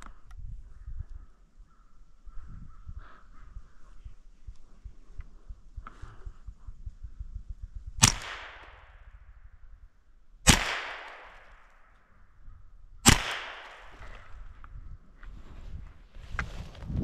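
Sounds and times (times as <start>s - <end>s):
gunshots with echo: 8.0s - 9.1s, 10.5s - 11.8s, 13.0s - 14.3s.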